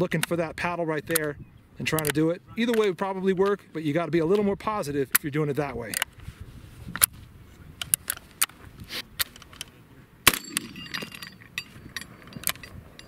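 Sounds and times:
gun handling clicks: 0.1s - 0.4s, 1.0s - 1.3s, 1.9s - 3.6s, 4.2s - 6.2s, 6.9s - 7.2s, 7.8s - 13.0s
shotgun shot: 10.2s - 10.8s
short ringing: 10.3s - 13.0s.

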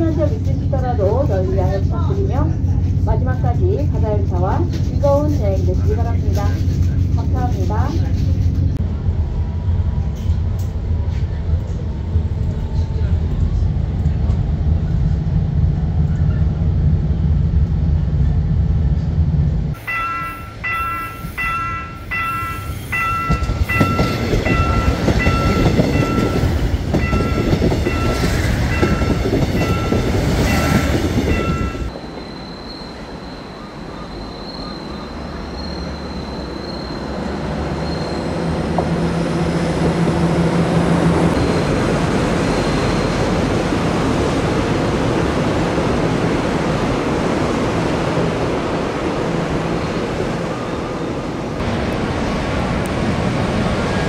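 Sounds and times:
diesel railcar rumbling: 0.0s - 54.0s
chiming bell dinging: 19.8s - 28.2s.

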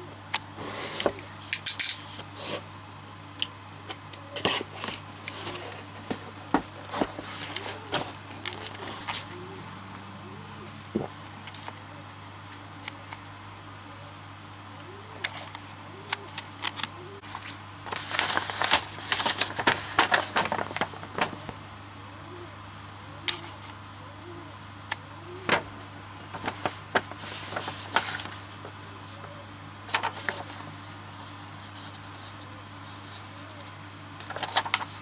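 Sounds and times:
steady low hum: 0.0s - 35.0s
packaging rustling: 4.4s - 9.4s, 16.7s - 21.6s, 25.4s - 28.7s, 29.9s - 30.8s.

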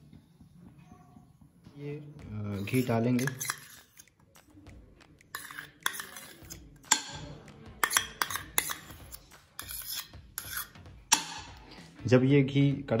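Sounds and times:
metal spoon clinking on steel bowl: 2.6s - 4.1s, 5.4s - 7.2s, 7.8s - 11.4s.

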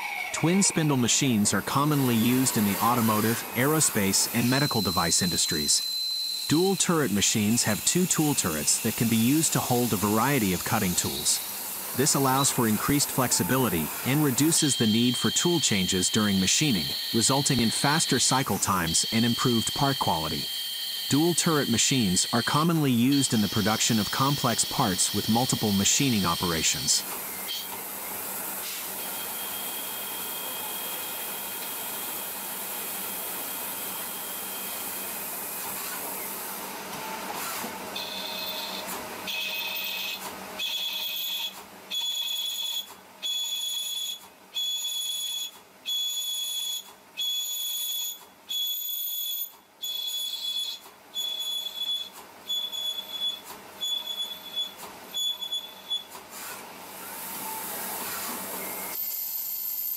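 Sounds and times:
lathe cutting metal: 0.0s - 26.9s.

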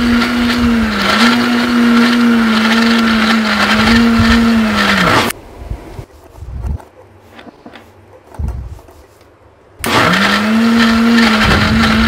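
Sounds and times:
mixer grinder motor running: 0.0s - 5.4s, 9.8s - 12.0s.

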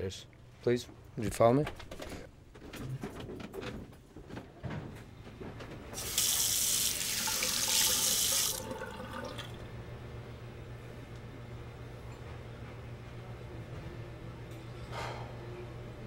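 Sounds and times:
hands rinsed under water: 6.0s - 9.6s
faucet running into sink: 6.0s - 9.7s.

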